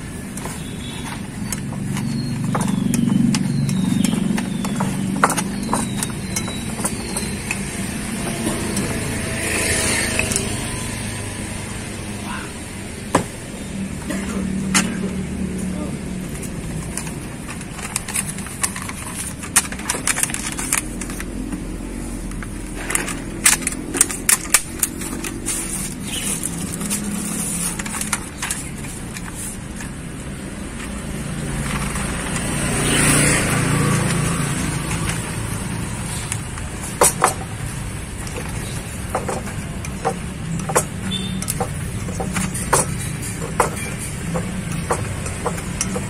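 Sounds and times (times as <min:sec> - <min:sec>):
motor vehicle passing: 0:00.0 - 0:46.0
utensil scraping ceramic plates: 0:22.6 - 0:46.0.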